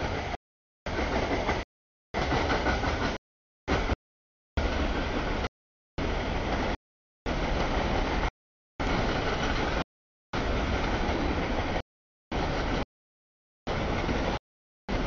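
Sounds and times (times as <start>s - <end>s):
freight train cars rolling: 0.0s - 1.6s, 2.2s - 4.0s, 4.6s - 9.8s, 10.4s - 12.8s.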